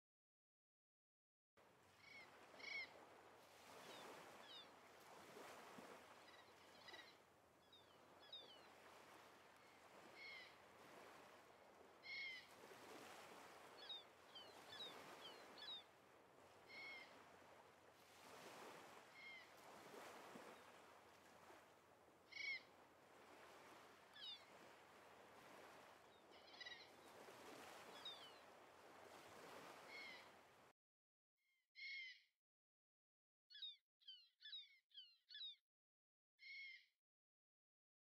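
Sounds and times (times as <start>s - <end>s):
bird calls: 6.1s - 11.2s, 12.0s - 12.6s, 13.6s - 15.9s, 16.6s - 17.4s, 22.3s - 22.7s, 26.2s - 28.5s.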